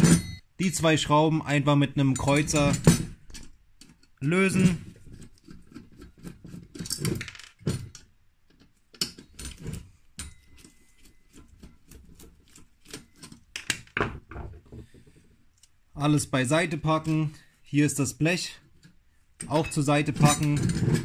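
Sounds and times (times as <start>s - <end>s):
metal parts being handled: 0.0s - 0.4s, 2.1s - 12.0s, 18.7s - 21.0s.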